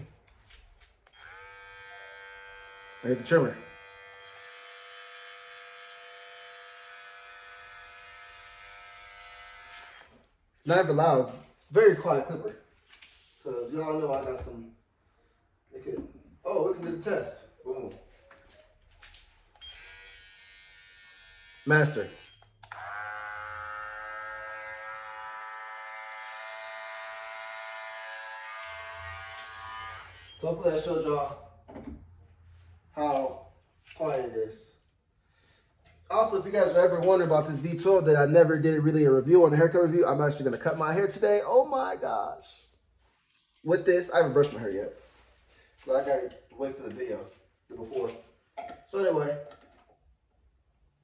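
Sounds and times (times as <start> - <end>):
hair clipper humming: 1.1 - 10.2, 19.6 - 30.3.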